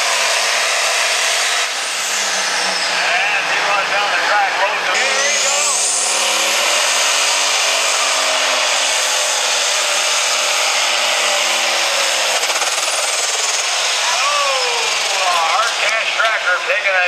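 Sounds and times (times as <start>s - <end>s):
high turbo whine: 0.0s - 17.0s
tractor diesel engine under load: 0.0s - 17.0s.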